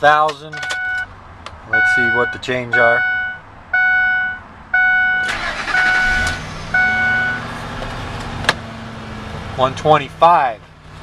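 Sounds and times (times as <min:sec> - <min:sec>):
dashboard warning chime: 0:00.4 - 0:01.1, 0:01.7 - 0:07.4
truck engine idling: 0:04.7 - 0:07.5
engine starter cranking: 0:05.2 - 0:06.5.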